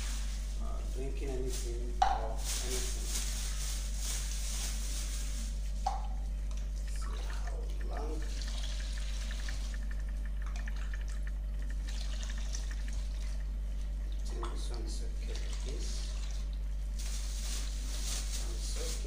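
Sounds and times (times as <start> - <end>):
plastic bag crinkling: 0.0 - 5.7, 16.9 - 19.0
steady low hum: 0.0 - 19.0
water splashing and trickling: 6.7 - 16.6.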